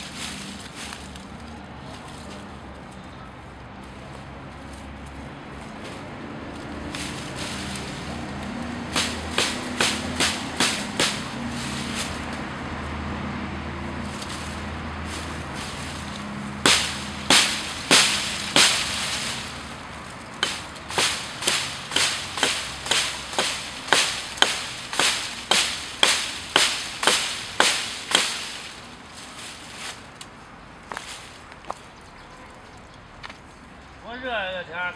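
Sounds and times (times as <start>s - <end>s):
hatchet chopping branch: 6.8s - 12.4s, 14.1s - 28.9s.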